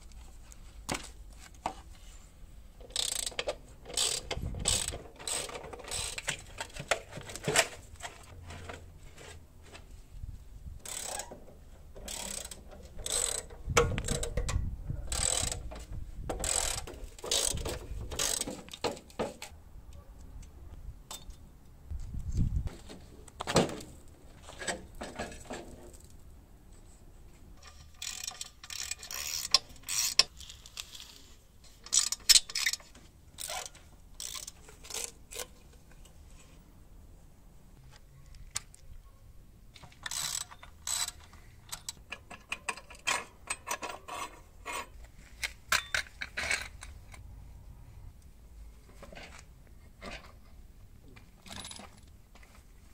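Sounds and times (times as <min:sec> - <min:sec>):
ratchet wrench clicking: 0:02.9 - 0:06.3, 0:12.1 - 0:14.4, 0:15.1 - 0:15.7, 0:16.4 - 0:17.6, 0:18.2 - 0:18.5, 0:27.6 - 0:31.2, 0:31.8 - 0:32.8, 0:33.4 - 0:35.4, 0:40.0 - 0:42.0.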